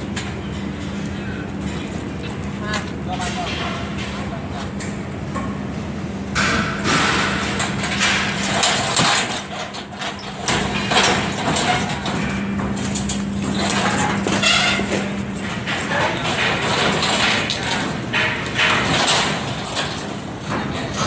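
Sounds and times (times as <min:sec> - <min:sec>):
steady low hum: 0:00.0 - 0:21.0
metal pipes clattering: 0:06.4 - 0:21.0.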